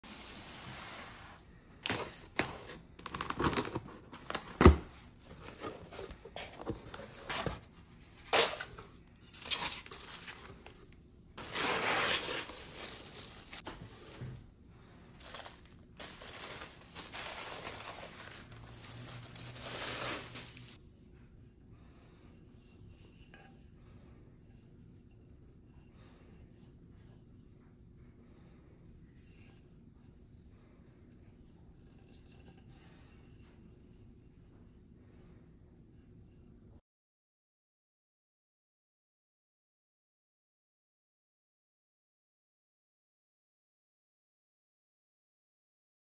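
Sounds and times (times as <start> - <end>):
cardboard and paper rustling: 1.8 - 20.8.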